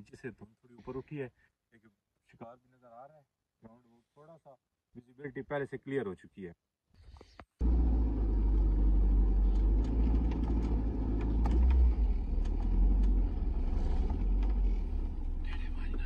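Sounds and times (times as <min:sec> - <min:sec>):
car engine and road rumble: 0:07.6 - 0:16.0
small rattles and clicks: 0:09.2 - 0:15.7.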